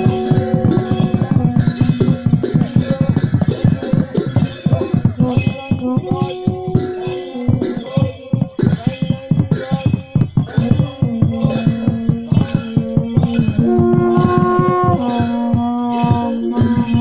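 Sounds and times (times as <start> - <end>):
drum beating quick rhythm: 0.0 - 17.0
long held melodic notes: 10.8 - 17.0.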